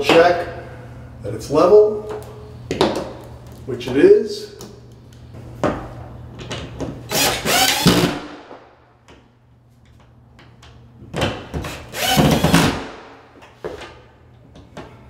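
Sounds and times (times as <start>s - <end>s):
cordless drill driving screws: 7.1s - 8.3s, 11.6s - 12.8s.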